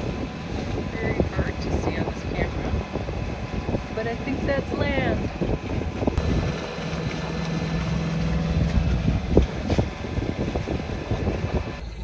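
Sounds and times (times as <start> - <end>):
boat engine low rumble: 0.0 - 12.0.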